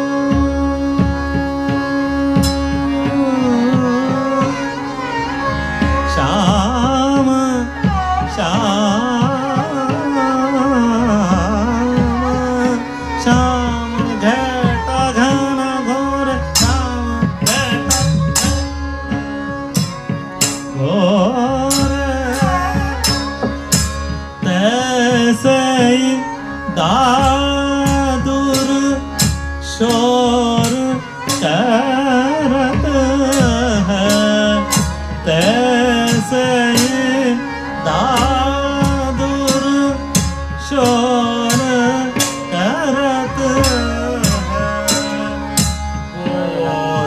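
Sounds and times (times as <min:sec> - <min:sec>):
barrel drum rhythm: 0:00.0 - 0:47.0
harmonium: 0:00.0 - 0:47.0
man singing ornamented phrases: 0:06.1 - 0:18.4, 0:24.4 - 0:47.0.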